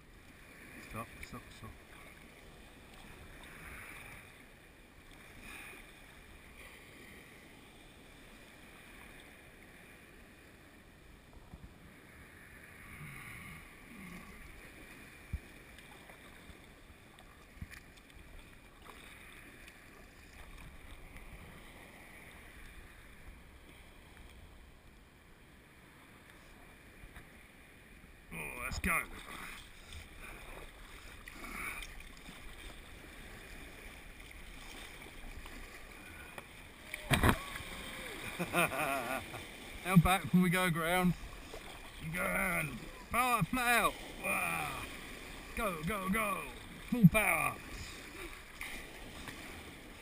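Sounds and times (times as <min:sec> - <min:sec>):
water splashing and lapping: 0:00.0 - 0:10.7, 0:11.3 - 0:24.7, 0:25.5 - 0:50.0.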